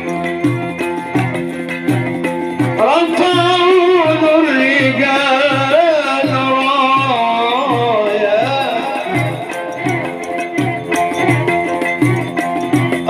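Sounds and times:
small hand cymbals ticking: 0.0 - 13.0
man singing into microphone: 2.8 - 9.6.

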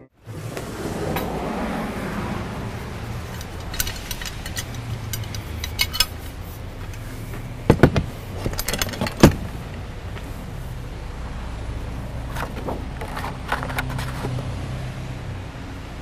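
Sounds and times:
steady low rumble: 0.6 - 13.5
light metallic clinks: 3.2 - 6.3.

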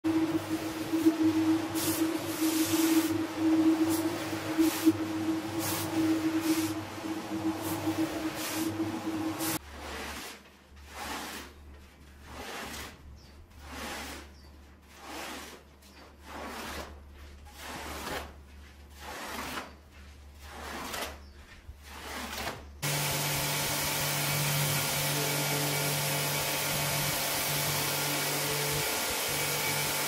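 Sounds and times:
cleaning machine motor hum: 0.0 - 9.6, 22.8 - 30.0
tool dragged across shag rug: 0.1 - 23.0.

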